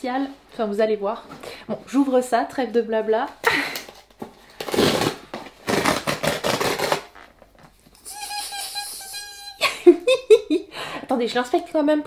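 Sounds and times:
packaging being torn open: 0:04.6 - 0:07.4.

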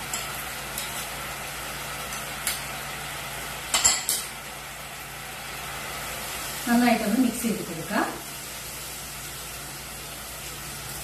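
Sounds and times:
spoon clinking bowl and pan: 0:00.0 - 0:01.0, 0:03.7 - 0:04.3
pan simmering hiss: 0:00.0 - 0:11.0.

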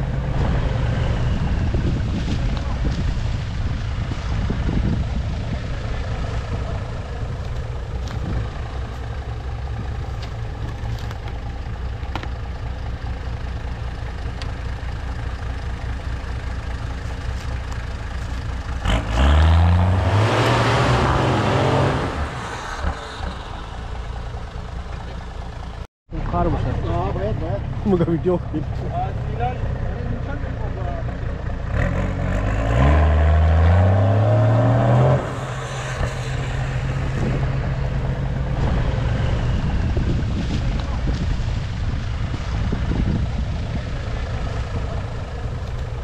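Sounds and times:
vehicle engine revving: 0:18.7 - 0:25.2, 0:26.3 - 0:46.0.

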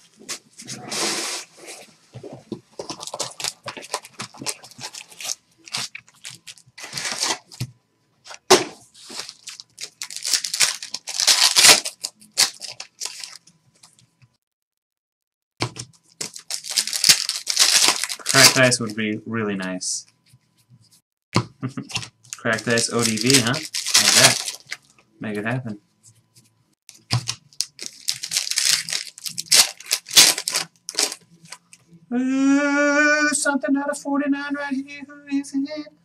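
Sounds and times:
card wrappers tearing and crinkling: 0:02.8 - 0:07.6, 0:08.3 - 0:13.5, 0:16.1 - 0:18.9, 0:21.9 - 0:24.9, 0:26.9 - 0:31.6.

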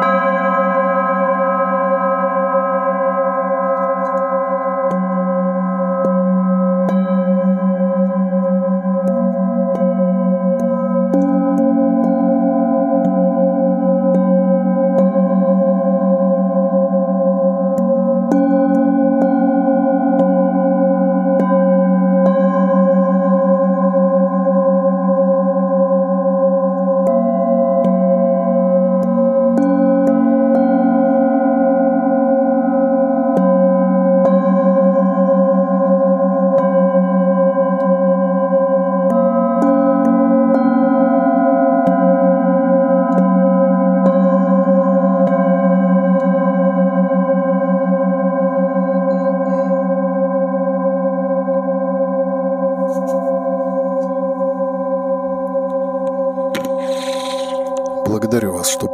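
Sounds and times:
singing bowls ringing: 0:00.0 - 0:58.1
felt mallet striking bowls: 0:03.6 - 0:24.4.

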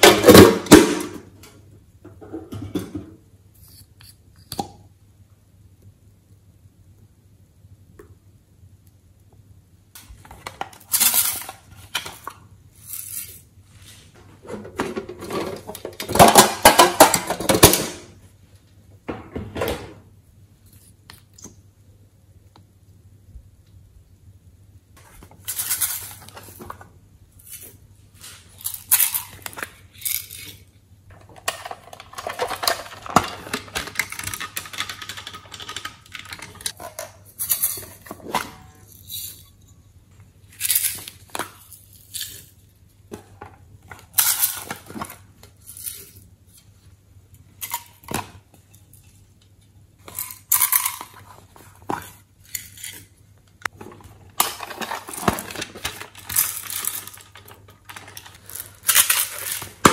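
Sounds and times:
sequins rattling in plastic containers: 0:28.6 - 0:36.8, 0:54.4 - 0:59.9.

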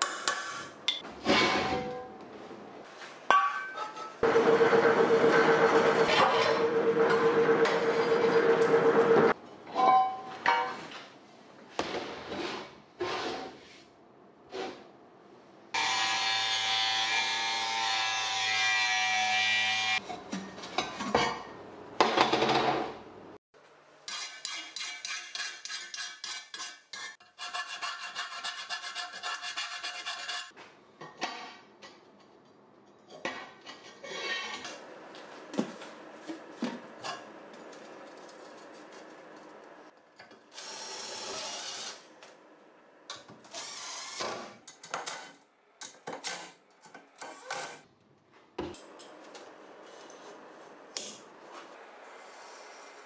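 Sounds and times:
rubbing and scraping on steel: 0:24.1 - 0:30.5
handling knocks and scrapes: 0:33.0 - 0:40.0.

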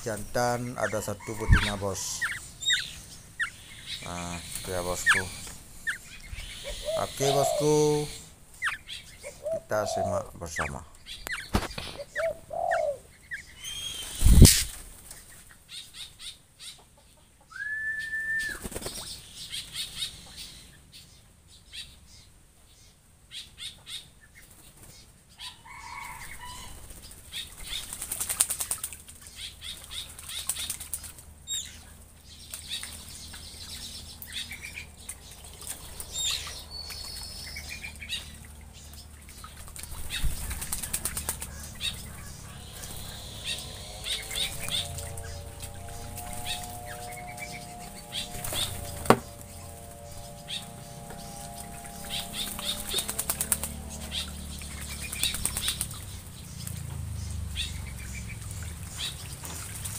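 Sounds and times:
birds splashing in water: 0:00.0 - 0:16.7, 0:18.3 - 0:20.5, 0:23.3 - 0:59.9
short high bird chirps: 0:13.6 - 0:14.7
whistled note: 0:17.6 - 0:18.6.

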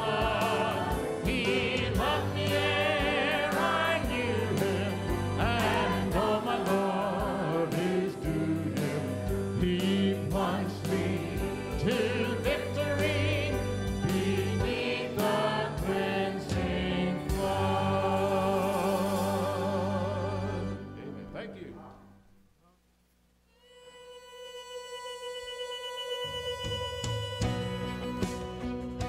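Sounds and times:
choir singing a hymn: 0:00.0 - 0:20.9
instrumental accompaniment: 0:00.0 - 0:22.1, 0:23.6 - 0:29.0.

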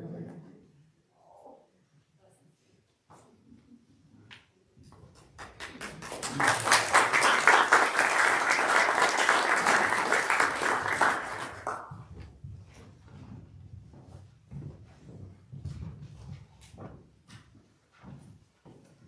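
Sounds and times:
crowd applauding: 0:05.4 - 0:11.9.

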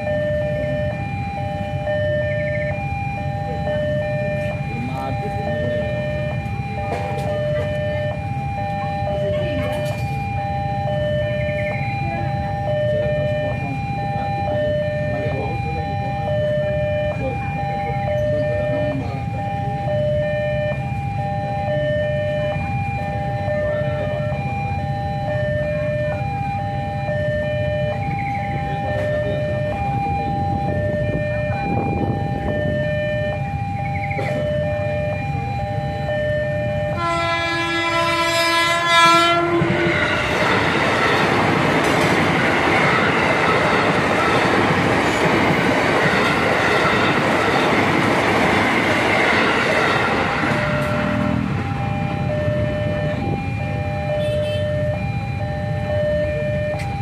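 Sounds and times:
crossing warning bell: 0:00.0 - 0:57.0
train wheels rumbling on rails: 0:00.0 - 0:57.0
train horn: 0:36.9 - 0:40.6, 0:54.1 - 0:55.0.

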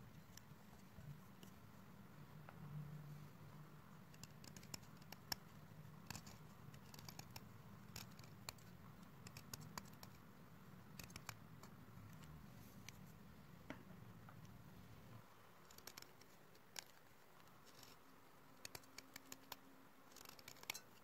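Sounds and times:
sharp scratchy clicks: 0:04.1 - 0:10.2, 0:10.8 - 0:12.3, 0:15.6 - 0:21.0.

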